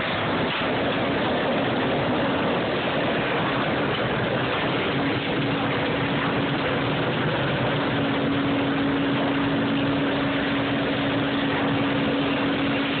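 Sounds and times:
constant machine hum: 0.0 - 13.0
sawmill machinery running: 0.0 - 13.0.

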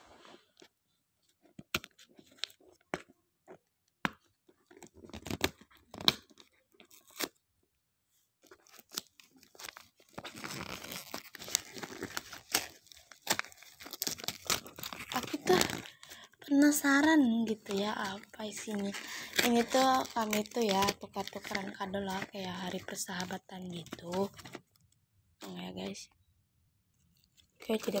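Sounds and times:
wrapping paper crinkling: 8.4 - 24.8, 27.2 - 28.0
paper tearing: 8.5 - 16.0, 17.7 - 22.3.

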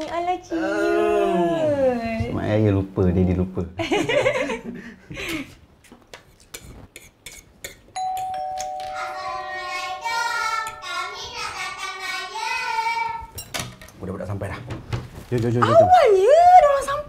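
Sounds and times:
two-note doorbell chime: 8.0 - 10.9
cutlery clinking on plates: 13.4 - 14.0.

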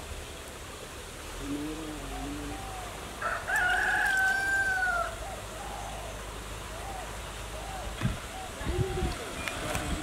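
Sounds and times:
rooster crowing: 3.2 - 5.2.

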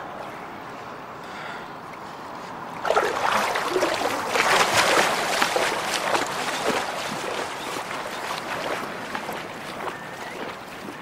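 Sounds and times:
person splashing through water: 2.8 - 11.0.

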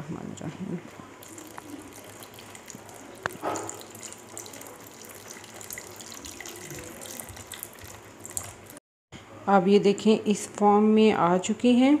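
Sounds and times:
liquid pouring into pan: 1.2 - 8.8
wooden spoon stirring: 1.2 - 8.8.

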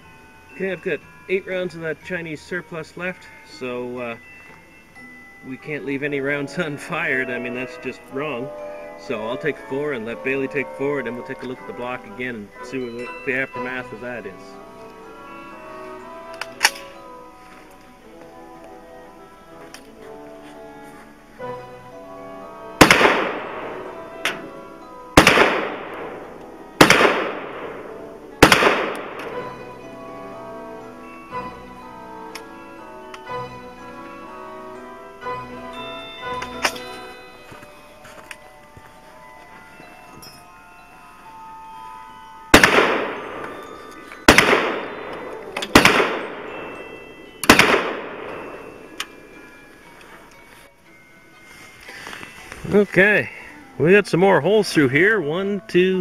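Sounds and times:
background music: 0.0 - 56.0
rifle shots: 22.8 - 23.9, 25.2 - 29.4, 42.6 - 49.0.

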